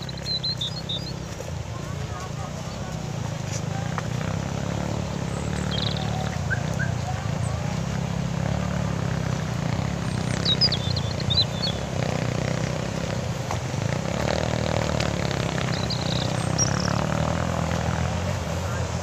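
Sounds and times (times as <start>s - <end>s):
high bird chirps: 0.0s - 1.3s, 5.2s - 7.0s, 10.0s - 12.0s, 15.3s - 17.3s.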